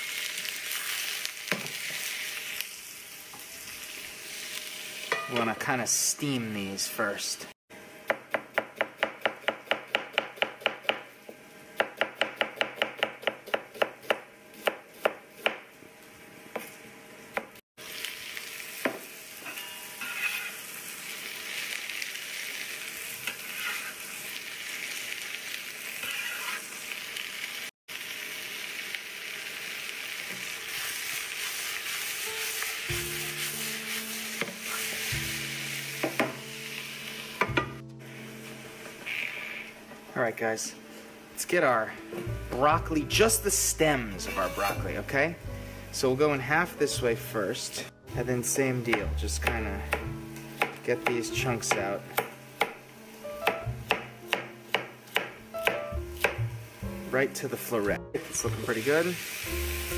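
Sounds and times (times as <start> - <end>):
onions sizzling in frying pan: 0.0 - 7.2, 10.6 - 11.8, 13.8 - 40.0, 48.4 - 59.9
knife chopping onion on board: 8.1 - 15.6, 48.9 - 52.8, 53.4 - 56.4.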